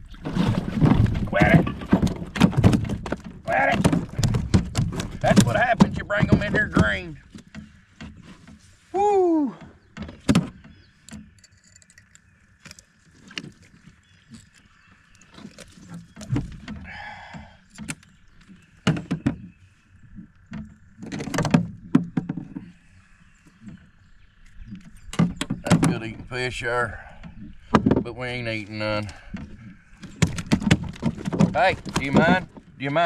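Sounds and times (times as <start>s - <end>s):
fishing tackle knocking in boat: 0.6s - 8.6s, 24.7s - 26.4s, 27.2s - 32.6s.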